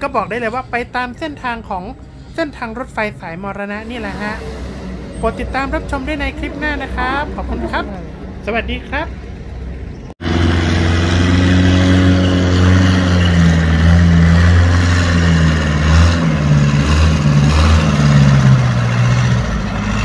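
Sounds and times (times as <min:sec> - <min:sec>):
boat engine running hard: 0:10.2 - 0:16.2.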